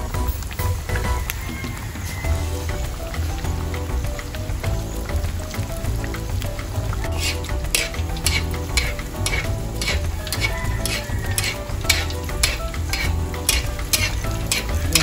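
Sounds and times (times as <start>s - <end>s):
fish deep-frying in oil: 0.0s - 15.0s
oil crackling and popping: 0.0s - 15.0s
metal spatula stirring oil: 2.4s - 15.0s.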